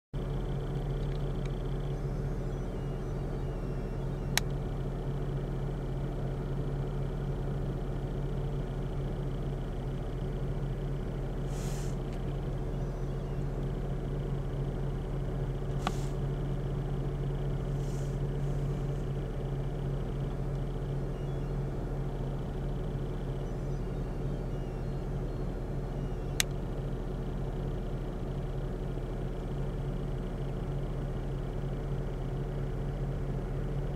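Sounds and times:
low mechanical hum: 0:00.2 - 0:33.9
sharp clicks: 0:04.0 - 0:04.6, 0:26.2 - 0:26.6
brief hisses: 0:11.5 - 0:12.1, 0:15.7 - 0:16.2.

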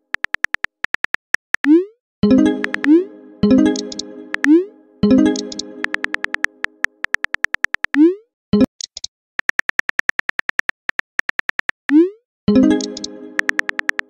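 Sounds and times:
synthetic keyboard tap ticks: 0:00.1 - 0:03.0, 0:03.7 - 0:04.6, 0:05.2 - 0:14.0
chime chord: 0:02.2 - 0:06.7, 0:12.5 - 0:13.6.

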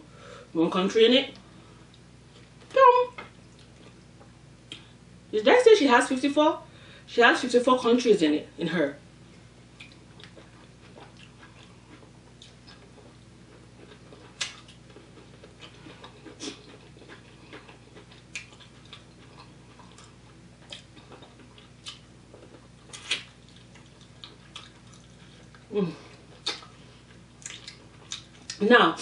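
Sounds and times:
faint steady hum: 0:00.0 - 0:29.0
wet mouth eating smacks: 0:26.4 - 0:26.8, 0:27.4 - 0:28.6.

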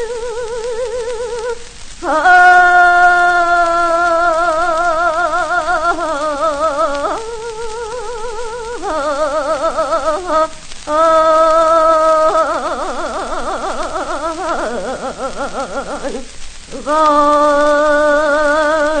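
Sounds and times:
woman singing folk song: 0:00.0 - 0:19.0.

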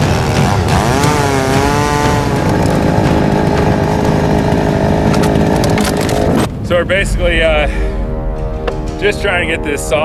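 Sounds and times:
chainsaw cutting log: 0:00.0 - 0:06.5.

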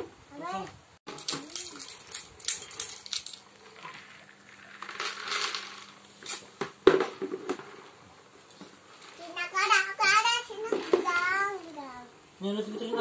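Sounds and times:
small hard pieces rattling: 0:01.1 - 0:06.1.

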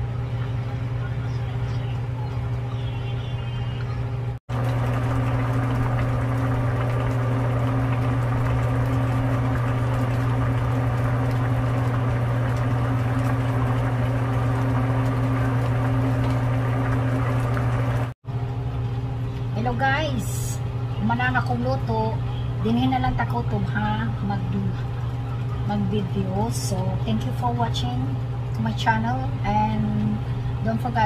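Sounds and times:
steady low hum: 0:00.0 - 0:31.0
soup bubbling in a pan: 0:04.5 - 0:18.2.

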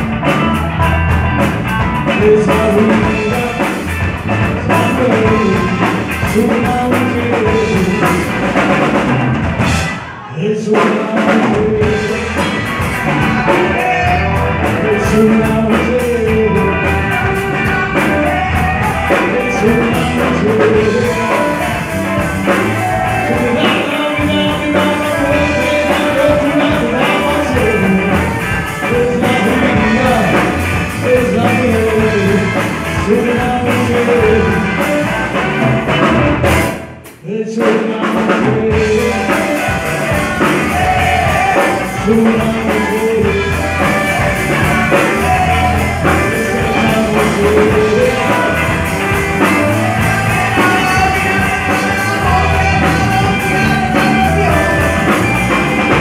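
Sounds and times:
rock band with singing: 0:00.0 - 0:56.0
saxophone: 0:42.8 - 0:56.0.

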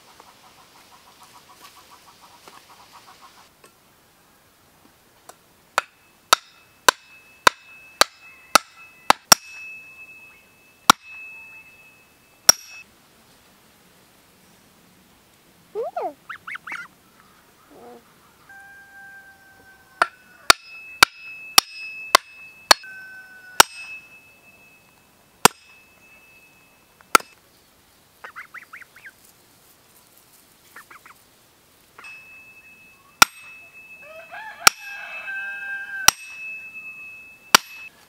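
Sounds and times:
axe hammering wooden stake: 0:05.8 - 0:09.6, 0:10.9 - 0:11.1, 0:12.5 - 0:12.8, 0:20.0 - 0:22.9, 0:23.6 - 0:24.0, 0:25.4 - 0:25.7, 0:27.1 - 0:27.4, 0:33.2 - 0:33.5, 0:34.6 - 0:34.9, 0:36.1 - 0:36.4, 0:37.5 - 0:37.9
geese honking: 0:16.0 - 0:20.5, 0:28.2 - 0:29.1, 0:30.8 - 0:31.2.

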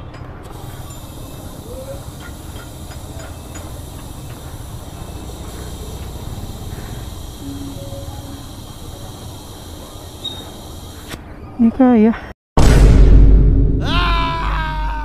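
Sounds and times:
compressed air hissing: 0:00.5 - 0:11.2.

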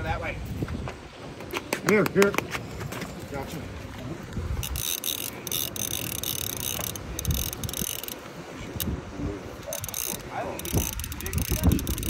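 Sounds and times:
fishing reel ratcheting and whirring: 0:04.6 - 0:09.0, 0:09.6 - 0:12.0.

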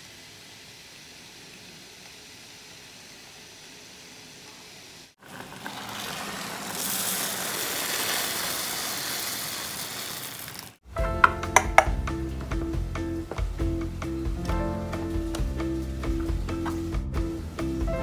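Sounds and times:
broth boiling in a pot: 0:00.0 - 0:10.8
rice grains poured in: 0:00.0 - 0:10.8.

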